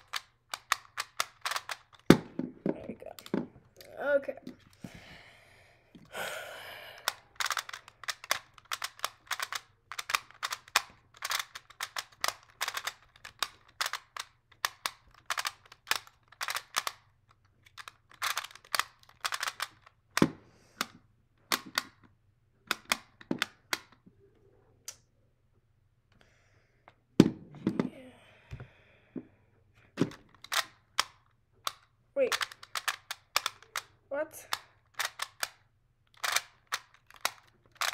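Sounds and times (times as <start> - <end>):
puzzle dials clicking: 0.0 - 2.1, 7.0 - 20.2, 30.1 - 37.9
puzzle knocking on table: 2.1 - 3.5.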